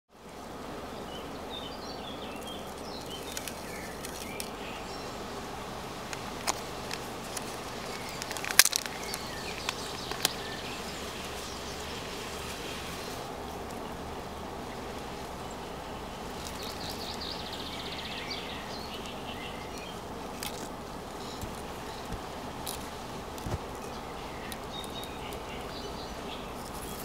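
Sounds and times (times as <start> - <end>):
outdoor background noise: 0.1 - 27.0
small birds chirping: 0.8 - 27.0
plastic packet clicks and crinkles: 6.1 - 10.4.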